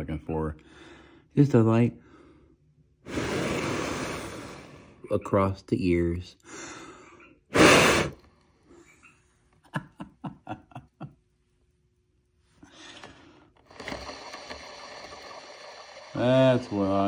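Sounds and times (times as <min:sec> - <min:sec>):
rotor whirring: 0:13.5 - 0:17.0.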